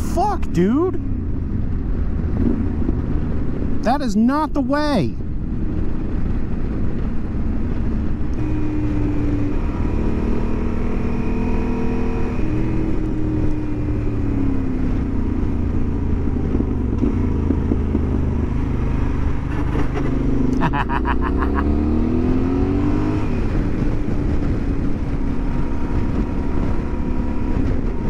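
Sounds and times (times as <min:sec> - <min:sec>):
wind noise on microphone: 0:01.0 - 0:04.0, 0:04.8 - 0:20.6, 0:21.6 - 0:28.0
motorcycle engine running: 0:12.4 - 0:21.7.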